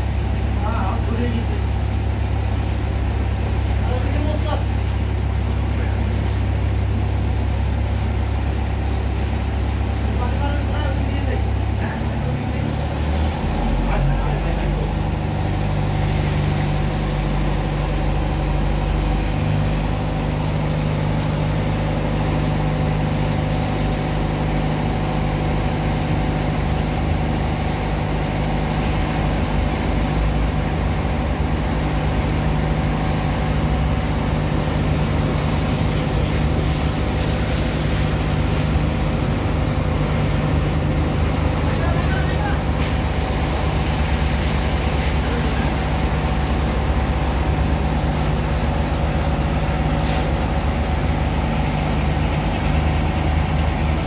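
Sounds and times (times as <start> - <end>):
pump engine humming: 0.0 - 54.0
water slurry rushing and splashing: 0.0 - 54.0.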